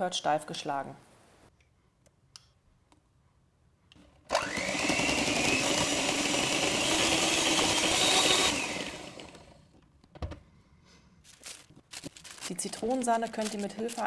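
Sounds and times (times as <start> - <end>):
electric hand mixer whirring: 4.3 - 9.7.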